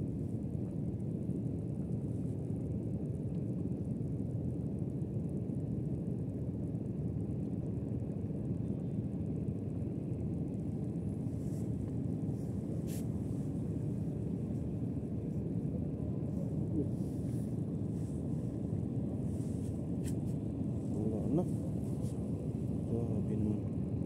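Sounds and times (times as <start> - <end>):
wind and sea rumble: 0.0 - 24.0
faint tick: 3.3 - 3.5.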